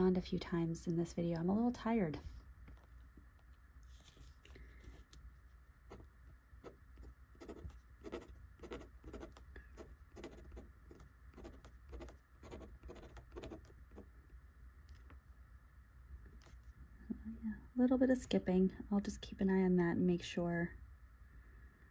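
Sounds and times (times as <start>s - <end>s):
pen nib scratching on paper: 5.9s - 14.1s.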